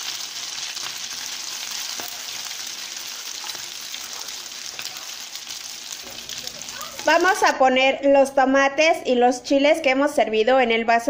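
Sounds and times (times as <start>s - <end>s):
patties sizzling in oil: 0.0s - 7.6s.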